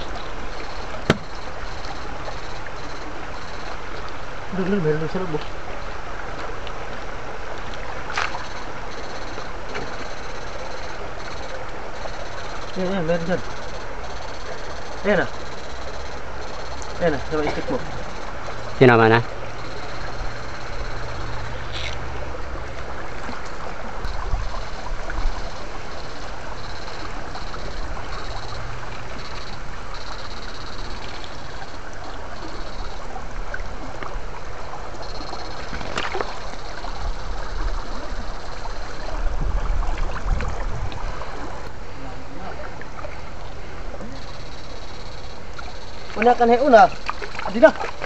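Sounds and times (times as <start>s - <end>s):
high-pitched electronic whine: 0.0s - 5.3s, 8.1s - 34.0s, 34.9s - 39.6s
stream water splashing: 0.0s - 48.0s.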